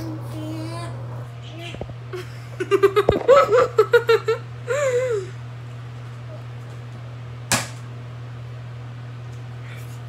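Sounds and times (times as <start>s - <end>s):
girl giggling: 2.1s - 5.4s
wavering hum of laughter: 2.1s - 5.4s.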